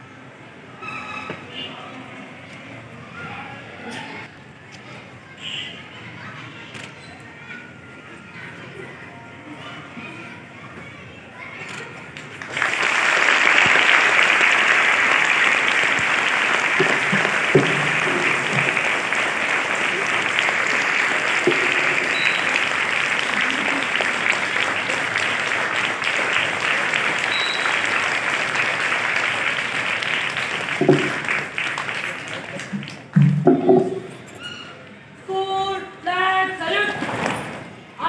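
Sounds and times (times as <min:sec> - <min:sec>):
voices: 0:01.4 - 0:37.0
crowd of children clapping: 0:12.1 - 0:34.1.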